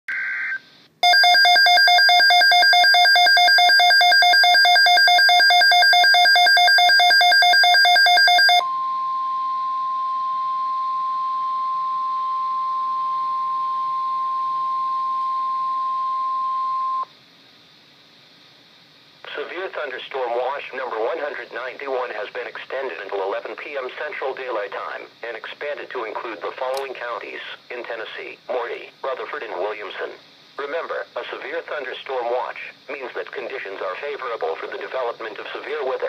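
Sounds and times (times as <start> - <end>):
rapidly pulsing electronic alarm: 1.0 - 11.8
steady warning alarm tone: 1.0 - 17.1.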